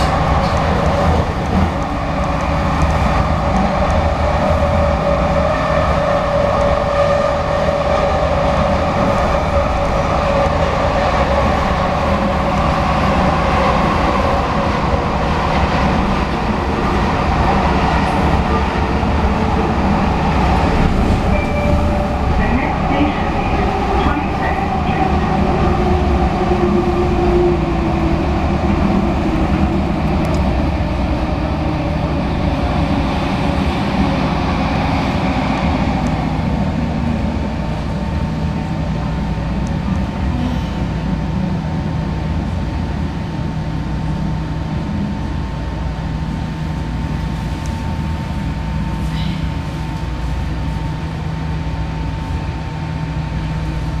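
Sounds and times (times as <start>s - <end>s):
train wheels rumbling on rail: 0.0s - 54.0s
high whine: 20.8s - 25.7s.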